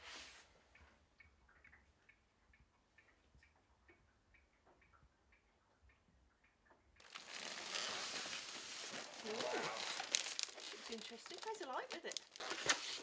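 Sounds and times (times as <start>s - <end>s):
rustling and scraping of cardboard box: 7.1s - 13.0s.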